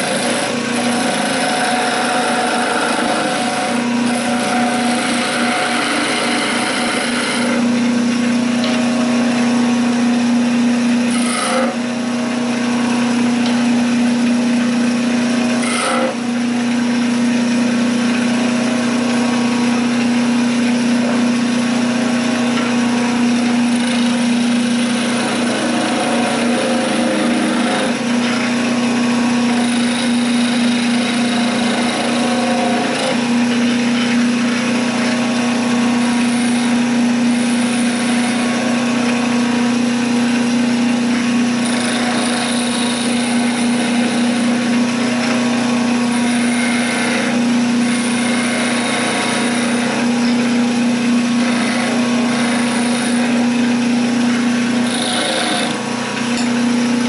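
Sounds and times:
turning tool cutting wood: 0:00.0 - 0:57.0
wood lathe humming: 0:00.0 - 0:57.0.

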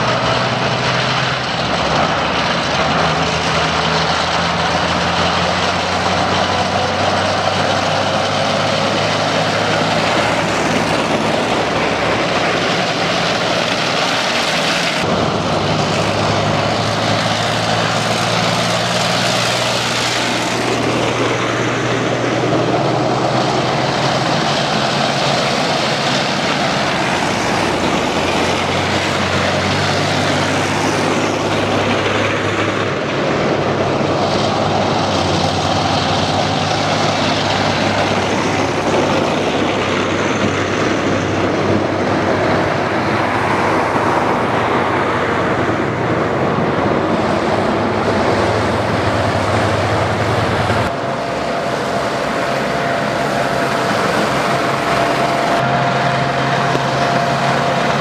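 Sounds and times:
heavy diesel engines droning: 0:00.0 - 0:58.0
road noise on wet road: 0:00.0 - 0:58.0.

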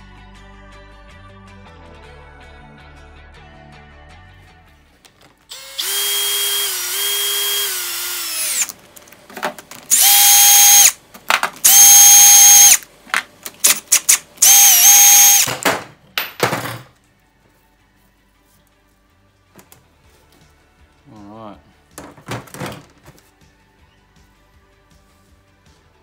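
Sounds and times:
cordless drill spinning bolts: 0:05.5 - 0:08.8, 0:09.9 - 0:11.0, 0:11.6 - 0:12.8, 0:13.5 - 0:15.6.

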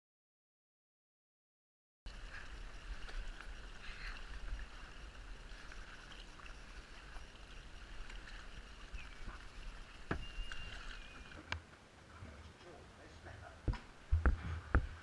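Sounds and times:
paddle splashes: 0:02.1 - 0:11.5
water washing and dripping: 0:02.1 - 0:11.6.

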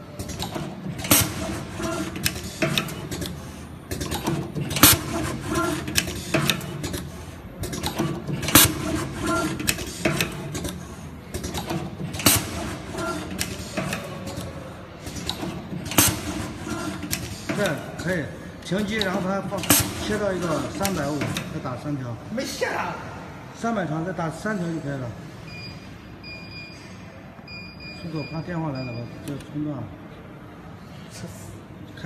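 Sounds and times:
loud sharp machine clack: 0:00.2 - 0:14.1, 0:15.0 - 0:17.8, 0:19.0 - 0:21.5
machine clicking and clacking: 0:00.2 - 0:21.6.

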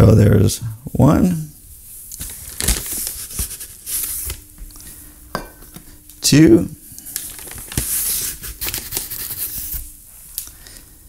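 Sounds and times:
paper bag rustling: 0:02.2 - 0:04.4, 0:07.0 - 0:09.9.

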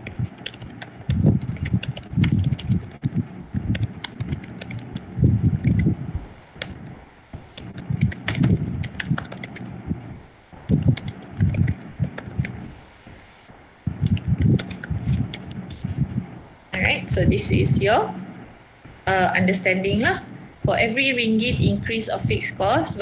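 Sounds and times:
keyboard typing: 0:00.0 - 0:17.8.

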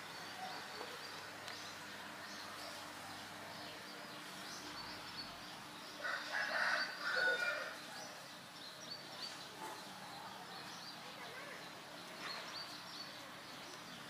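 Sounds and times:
small birds chirping: 0:00.0 - 0:14.0
rooster crowing: 0:06.0 - 0:07.8.

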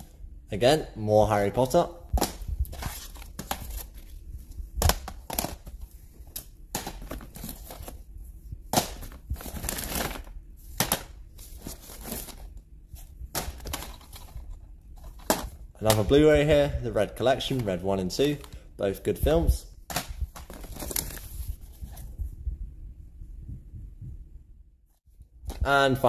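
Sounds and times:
plastic cases clacking: 0:04.8 - 0:08.0, 0:13.3 - 0:16.3
plastic bag rustling: 0:08.9 - 0:16.3, 0:20.2 - 0:22.1.

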